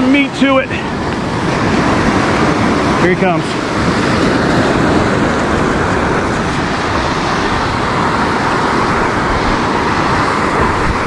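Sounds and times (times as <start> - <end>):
surf washing onto beach: 0.0 - 11.0.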